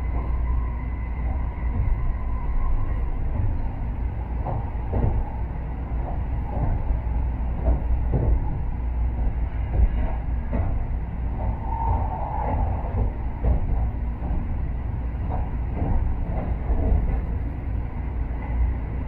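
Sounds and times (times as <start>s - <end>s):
train cabin rumble: 0.0s - 19.0s
light knocks and rattles: 6.0s - 7.0s, 7.6s - 11.6s.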